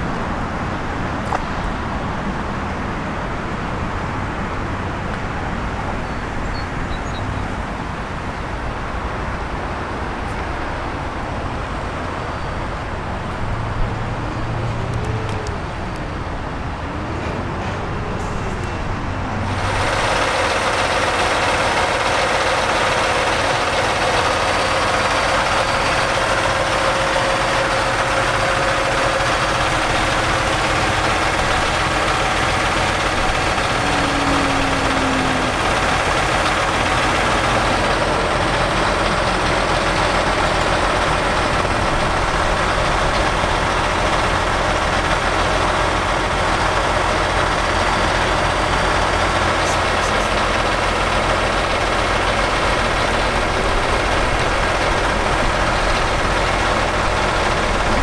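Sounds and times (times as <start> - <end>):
diesel truck engine idling: 0.0 - 58.0
light traffic noise: 0.0 - 58.0
faint wavering tone: 33.6 - 36.1.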